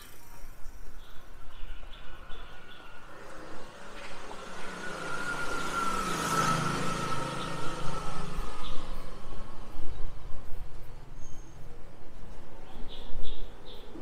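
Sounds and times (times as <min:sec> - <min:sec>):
vehicle passing by: 0:01.8 - 0:12.7.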